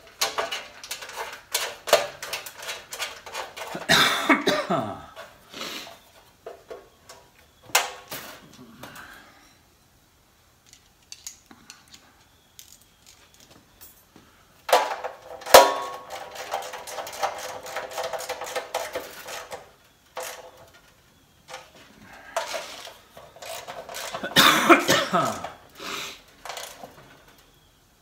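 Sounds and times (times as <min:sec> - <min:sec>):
bolts clicking in metal tray: 0:00.0 - 0:04.0, 0:22.4 - 0:25.7
metallic clattering in ringing tray: 0:14.8 - 0:20.6.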